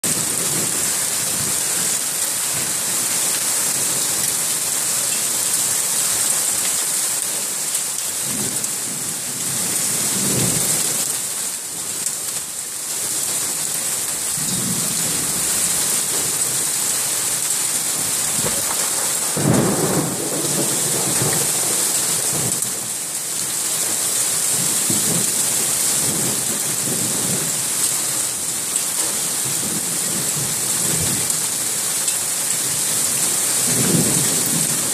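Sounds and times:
heavy rain pouring: 0:00.0 - 0:34.9
thunder rumbles: 0:17.9 - 0:22.9.

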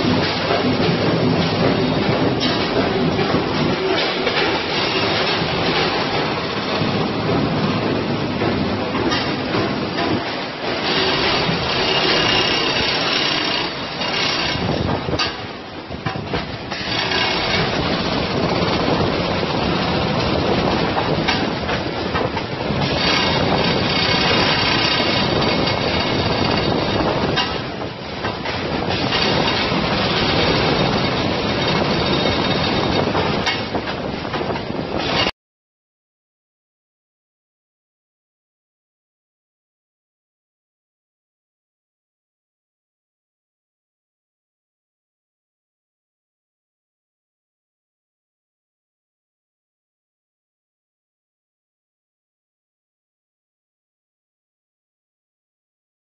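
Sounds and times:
dense mechanical factory noise: 0:00.0 - 0:35.3
packing machine running: 0:00.0 - 0:35.3.

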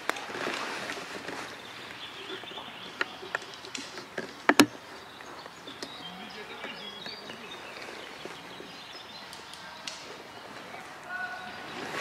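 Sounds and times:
small birds chirping: 0:00.6 - 0:12.0
faint clicks: 0:02.3 - 0:08.4, 0:09.2 - 0:10.1.

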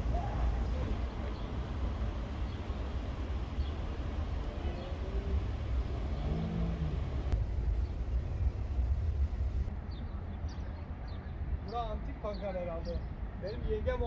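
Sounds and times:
vehicle engine: 0:00.0 - 0:09.7
road traffic rumble: 0:00.0 - 0:14.0.

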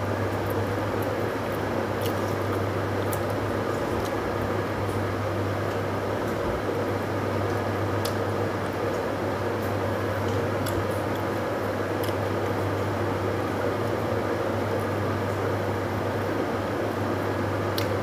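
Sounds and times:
low mechanical hum: 0:00.0 - 0:18.0
man chewing: 0:00.3 - 0:06.4, 0:10.3 - 0:12.5.

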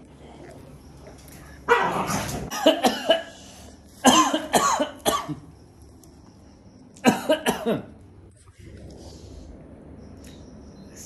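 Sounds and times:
dog barking: 0:01.7 - 0:02.3.

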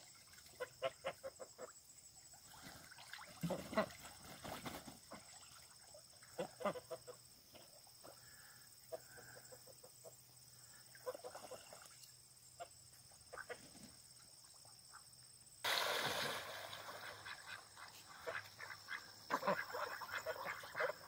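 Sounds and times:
rushing hiss: 0:15.6 - 0:16.8
geese and ducks calling: 0:17.0 - 0:21.0.

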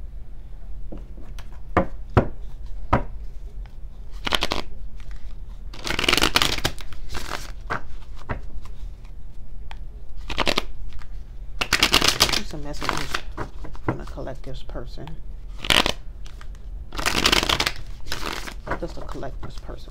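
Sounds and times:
cards shuffling: 0:02.4 - 0:09.2, 0:10.2 - 0:14.3, 0:15.5 - 0:19.9
cards tapping: 0:10.3 - 0:14.2.

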